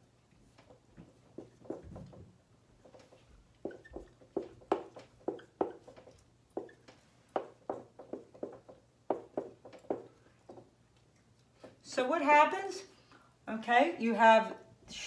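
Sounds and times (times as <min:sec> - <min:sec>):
marker tapping on whiteboard: 0:00.6 - 0:10.7.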